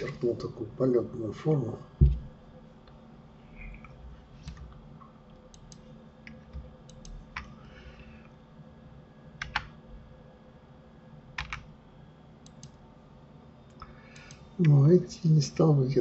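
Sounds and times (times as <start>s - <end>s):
faint steady hum: 0.0s - 16.0s
keyboard and mouse clicks: 5.5s - 7.5s, 9.4s - 9.7s, 11.4s - 11.7s, 12.4s - 12.8s, 13.8s - 14.8s.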